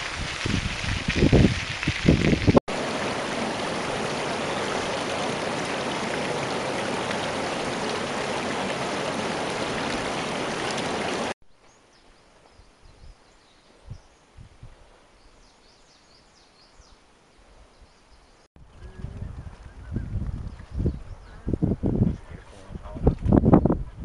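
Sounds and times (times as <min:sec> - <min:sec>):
stream running over stones: 0:00.0 - 0:11.4.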